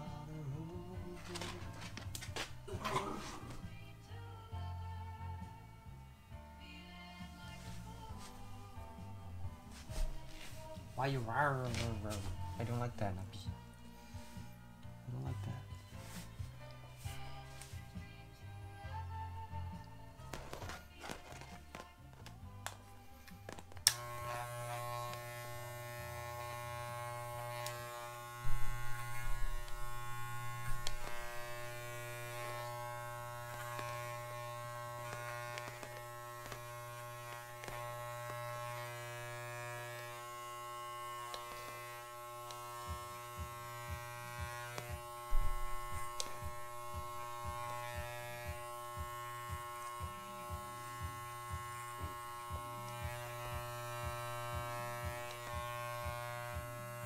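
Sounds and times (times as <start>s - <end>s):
electric dog clipper buzzing: 0.0s - 3.9s, 19.8s - 57.0s.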